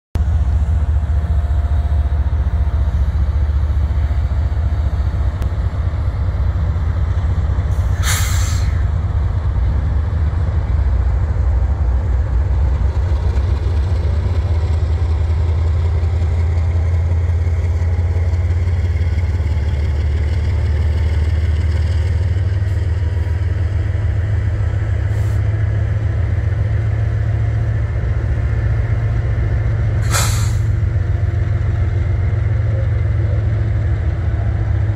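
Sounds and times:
locomotive engines rumbling: 0:00.2 - 0:34.9
air brake hiss: 0:07.7 - 0:08.8, 0:25.1 - 0:25.4, 0:30.0 - 0:30.8.

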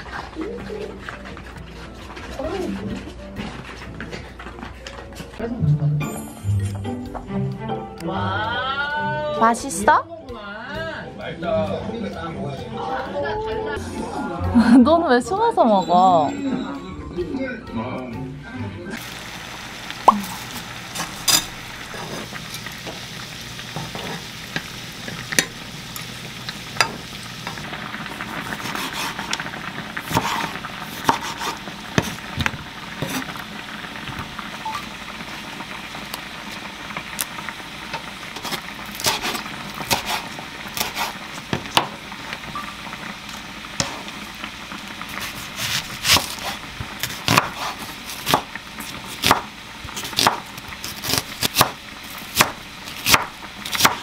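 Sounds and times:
pasta boiling in a pot: 0:00.0 - 0:05.4, 0:08.1 - 0:12.0, 0:19.0 - 0:54.0
utensils tapping on cookware: 0:21.0 - 0:23.0
knife cutting onion on board: 0:28.4 - 0:29.3, 0:30.0 - 0:33.3, 0:38.4 - 0:42.0, 0:45.2 - 0:54.0.

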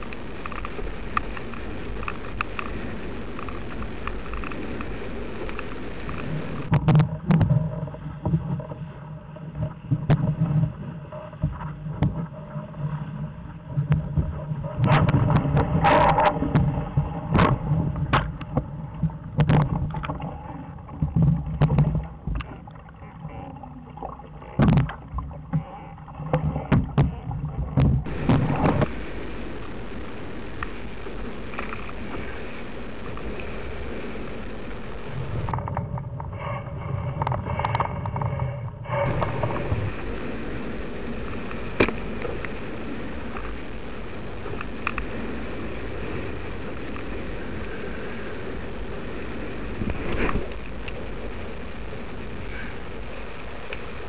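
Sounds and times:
low rumble: 0:00.0 - 0:22.5, 0:23.2 - 0:54.0
wind and water rushing: 0:00.0 - 0:54.0
loud knocks and buffets: 0:27.8 - 0:36.4, 0:37.2 - 0:45.1.

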